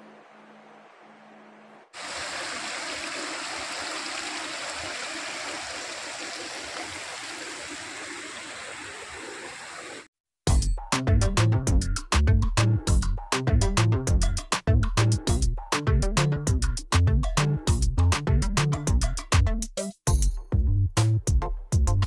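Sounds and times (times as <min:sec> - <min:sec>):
water rushing over rocks: 0:02.0 - 0:10.1.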